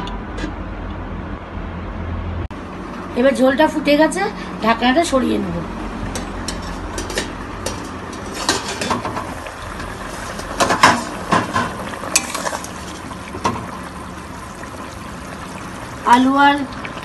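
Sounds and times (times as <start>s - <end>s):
boiling broth bubbling: 5.8s - 17.0s
metal lid clinking: 6.2s - 9.2s
metal spatula scraping pan: 6.5s - 9.1s.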